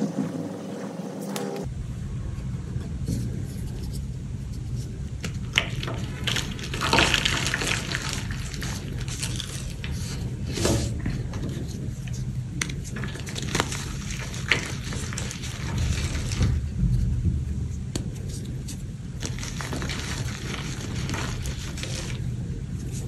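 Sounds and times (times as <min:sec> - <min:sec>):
chalk blocks crunching by hand: 0:05.2 - 0:16.6, 0:18.0 - 0:23.0.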